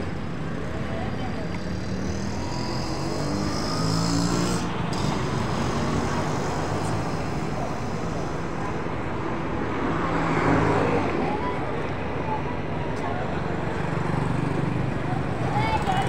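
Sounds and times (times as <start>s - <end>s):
road traffic rumble: 0.0s - 16.0s.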